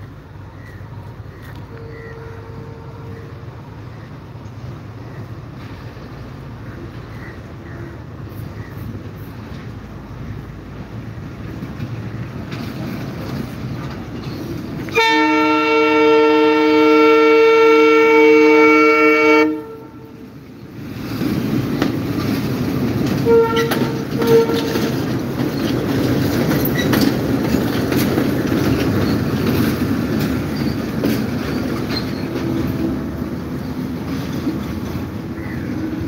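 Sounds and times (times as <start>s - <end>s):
train rumbling past: 0.0s - 36.0s
locomotive horn: 1.7s - 3.5s, 14.9s - 20.3s, 23.2s - 25.1s
wheels clicking over rail joints: 3.8s - 17.3s, 20.1s - 36.0s.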